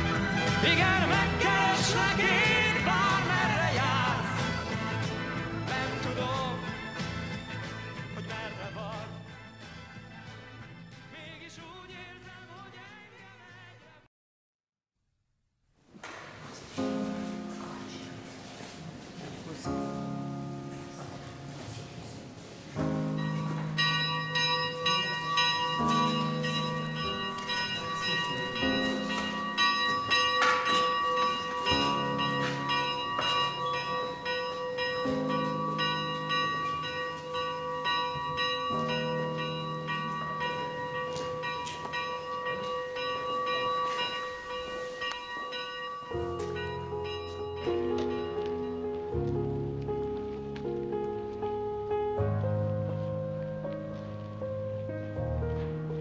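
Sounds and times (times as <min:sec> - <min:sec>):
slow music chords: 0:16.8 - 0:56.0
bell tolling: 0:22.8 - 0:49.2.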